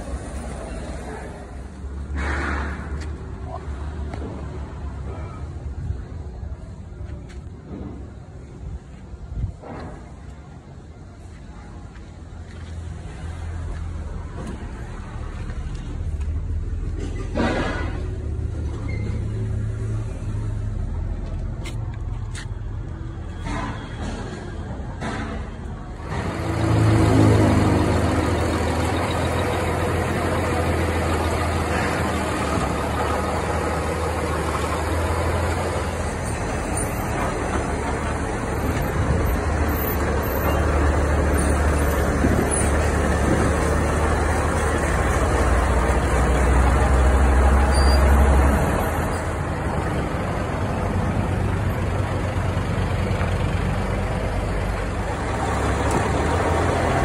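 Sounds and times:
heavy diesel engine running: 0.0 - 5.0, 22.8 - 57.0.

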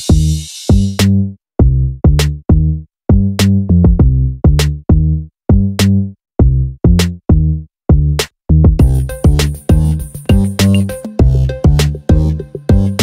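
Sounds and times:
electronic music with drum machine: 0.0 - 1.2, 8.6 - 13.0.

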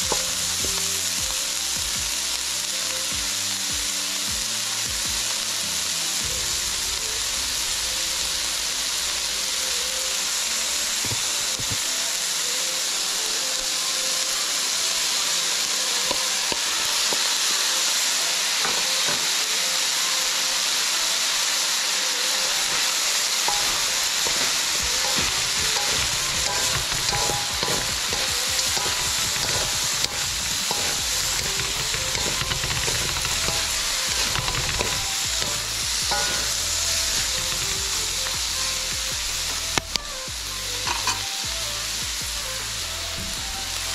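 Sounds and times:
onion sizzling in hot oil: 0.0 - 43.9
wooden spatulas stirring and scraping: 23.5 - 37.6.

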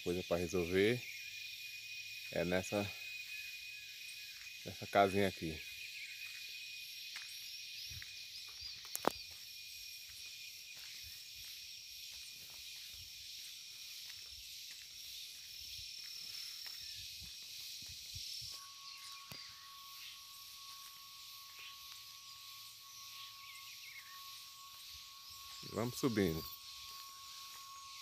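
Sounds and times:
insects chirring: 0.0 - 28.0
footsteps on dirt path: 3.1 - 4.8, 5.6 - 28.0
high buzz: 18.5 - 28.0
low steady note: 18.5 - 28.0.

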